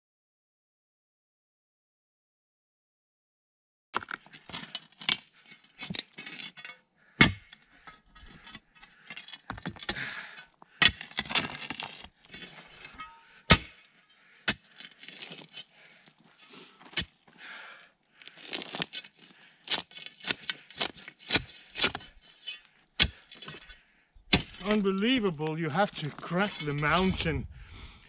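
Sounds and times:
metal tool striking rocky ground: 0:04.0 - 0:15.7, 0:18.5 - 0:27.5
gravel scraping and crunching: 0:08.2 - 0:13.1, 0:14.5 - 0:23.8, 0:24.4 - 0:28.0.

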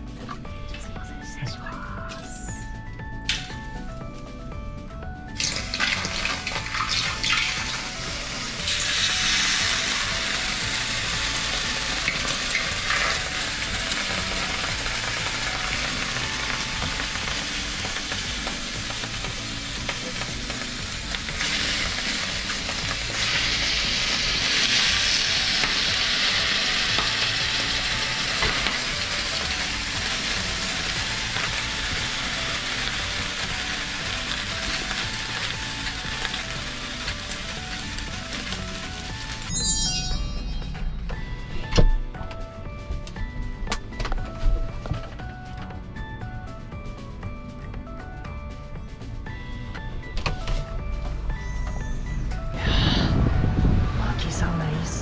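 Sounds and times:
quiet background music: 0:00.0 - 0:55.0
water hissing on hot sauna stones: 0:05.4 - 0:39.6.

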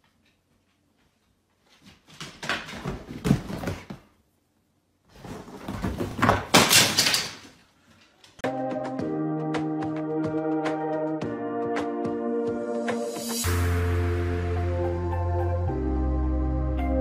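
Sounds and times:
dog scrambling on leather sofa: 0:02.3 - 0:04.0, 0:05.1 - 0:07.0.

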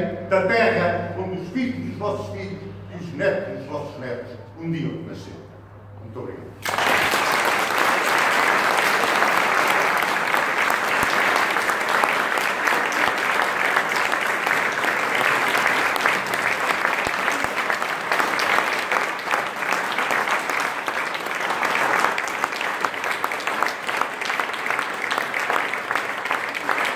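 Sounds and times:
crowd applauding: 0:06.6 - 0:26.9.

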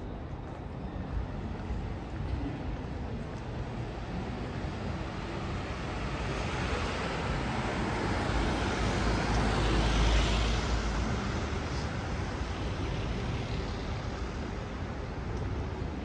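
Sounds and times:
cars driving past: 0:04.0 - 0:16.0.

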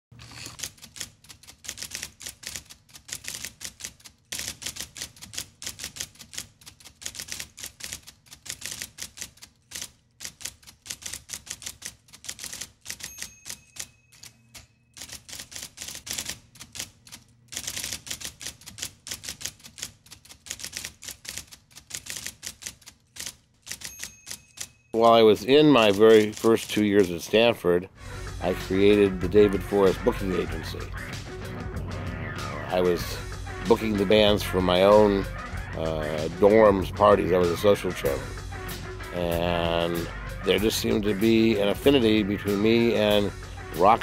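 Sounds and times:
typewriter keys clacking: 0:00.2 - 0:27.4.

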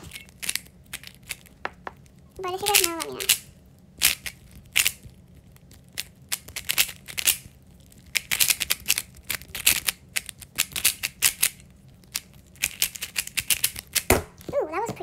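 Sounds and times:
speed cube plastic clicks: 0:02.6 - 0:05.1, 0:05.9 - 0:14.2.

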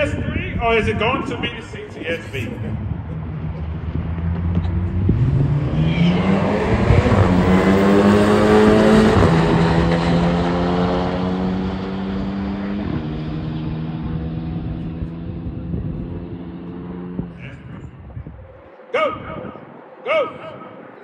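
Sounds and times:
cars accelerating at full throttle: 0:02.3 - 0:18.0.

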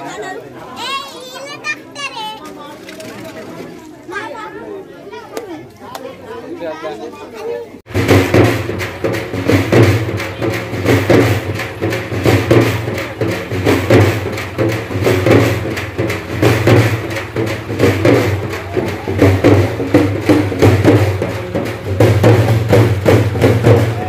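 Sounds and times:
loud music with percussive beat: 0:07.9 - 0:24.0.

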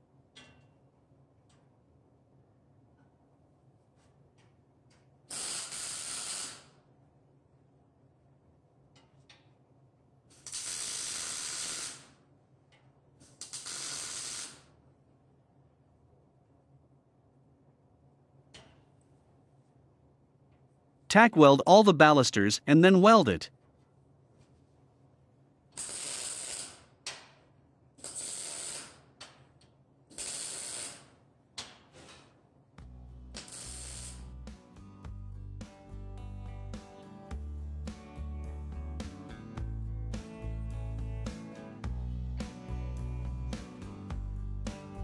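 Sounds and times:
welding arc buzzing: 0:05.3 - 0:06.7, 0:10.4 - 0:12.1, 0:13.4 - 0:14.6, 0:25.8 - 0:26.8, 0:33.4 - 0:34.4.

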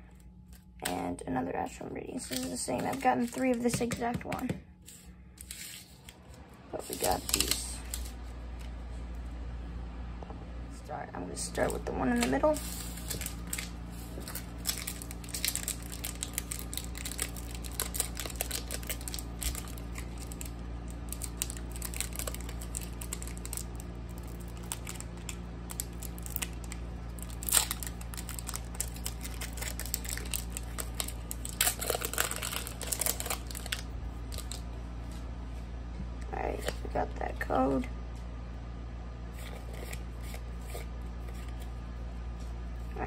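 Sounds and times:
steady low hum: 0:00.0 - 0:43.0
foil wrapper crinkling and tearing: 0:02.2 - 0:03.7, 0:06.8 - 0:08.2, 0:12.1 - 0:34.6.

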